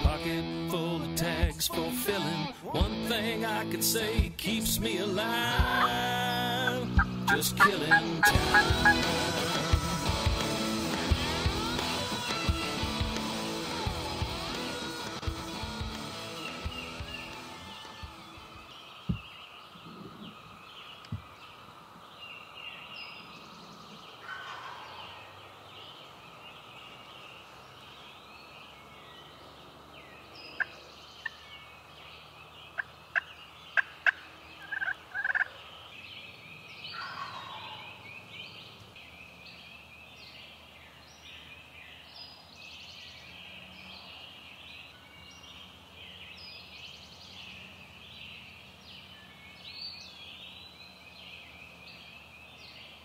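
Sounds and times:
songbirds singing: 0.0 - 53.0
turkey gobbling: 5.6 - 6.0, 6.6 - 9.5, 24.2 - 25.2, 32.8 - 35.6, 36.9 - 38.0.

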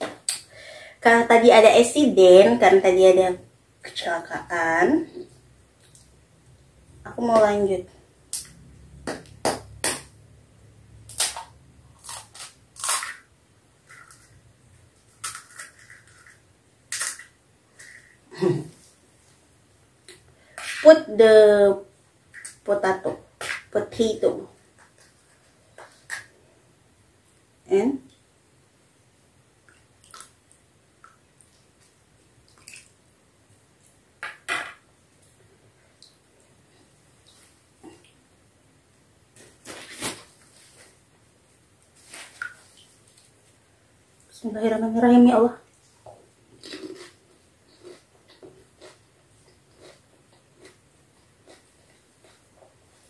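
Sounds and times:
crisp shells cracking: 11.1 - 13.3, 15.1 - 17.4.

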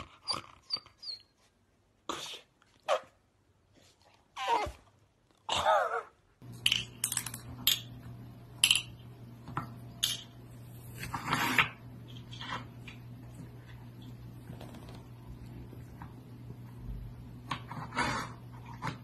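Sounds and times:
low steady hum: 6.4 - 19.0.

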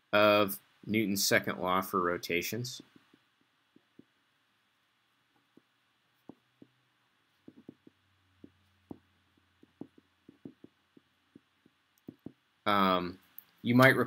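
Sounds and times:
pen writing on paper: 7.4 - 12.4.

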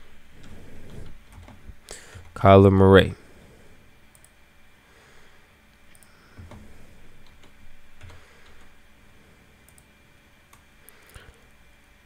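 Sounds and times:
faint keyboard typing: 0.4 - 2.4, 4.1 - 4.4, 5.9 - 8.8, 9.6 - 11.4
mouse clicks: 5.9 - 6.6.

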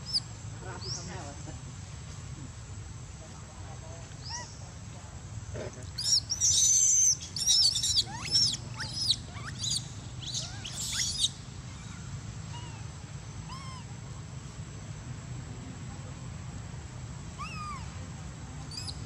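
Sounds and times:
baby monkey squealing: 4.2 - 4.6, 6.0 - 13.9, 17.4 - 17.9, 18.7 - 19.0.

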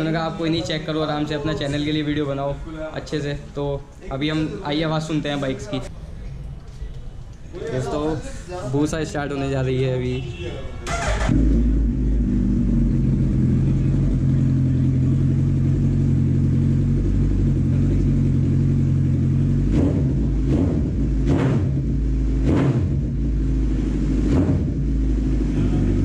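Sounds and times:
sharp throttle revs: 10.8 - 13.9, 19.4 - 26.0
motorcycle engine idling: 10.9 - 26.0.

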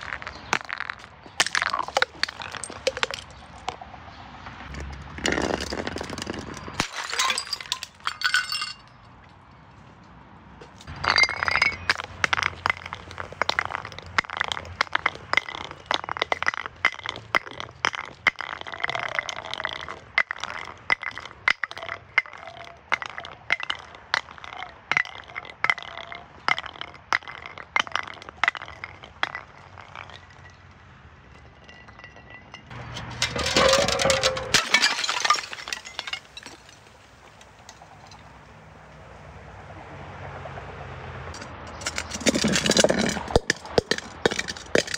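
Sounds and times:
glass bottles clinking and cracking: 0.0 - 3.8, 5.2 - 9.0, 10.8 - 38.2, 41.4 - 44.9
glass breaking: 5.2 - 9.0, 10.9 - 30.6, 31.3 - 38.2, 41.8 - 44.9.

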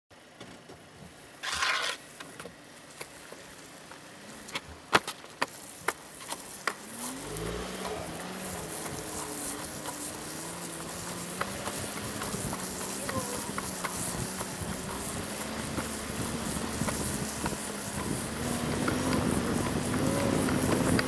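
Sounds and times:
vehicle engine running: 2.1 - 21.0
tyres hissing on wet road: 5.4 - 21.0
longboard clicks and taps: 7.8 - 21.0.

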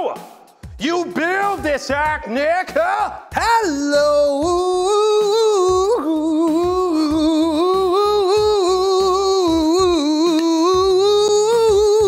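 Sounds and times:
man singing a long note: 3.4 - 12.0.

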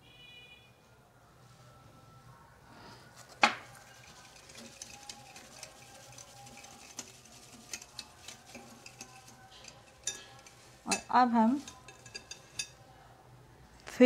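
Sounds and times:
spoon stirring paste in bowl: 3.1 - 12.8
spoon clinking against bowl: 3.8 - 12.8.

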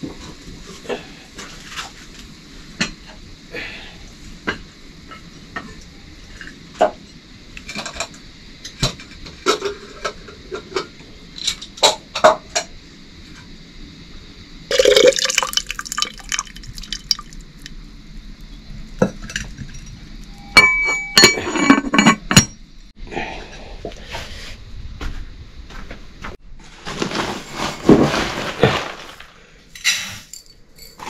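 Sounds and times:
ringing metal clinks: 19.7 - 22.6, 30.3 - 31.0
metal pots knocking and clinking: 20.6 - 22.6.

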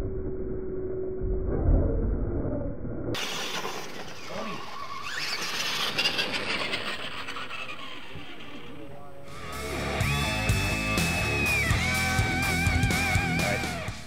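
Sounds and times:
rc truck motors whining: 3.2 - 13.7.

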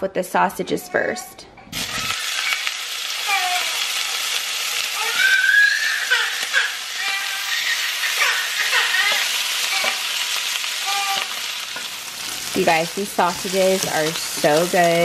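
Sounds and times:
sausage sizzling in oil: 1.7 - 15.0.

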